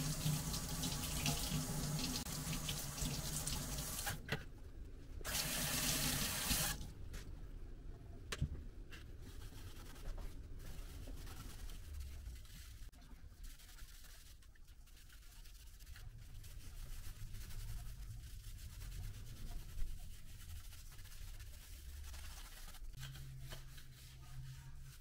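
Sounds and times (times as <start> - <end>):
wet sponge rubbing on plastic: 9.0 - 25.0.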